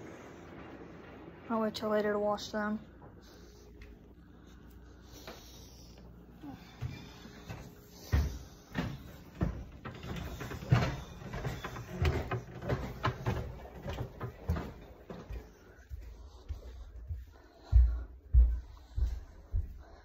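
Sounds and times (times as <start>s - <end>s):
footsteps climbing stairs: 5.0s - 20.0s.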